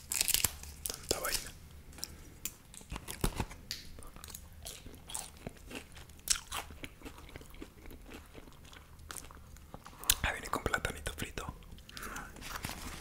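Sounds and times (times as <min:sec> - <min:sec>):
crunching french fries: 0:00.0 - 0:10.2.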